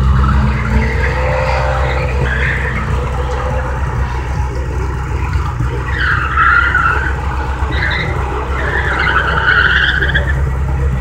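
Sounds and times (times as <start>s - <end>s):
car tyres squealing: 0.0s - 11.0s
steady low rumble: 0.0s - 11.0s.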